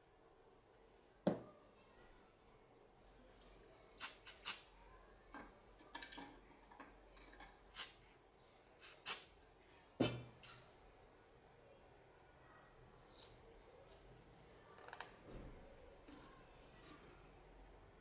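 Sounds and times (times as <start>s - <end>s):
aerosol spray puffs: 4.0s - 4.7s, 8.8s - 9.3s.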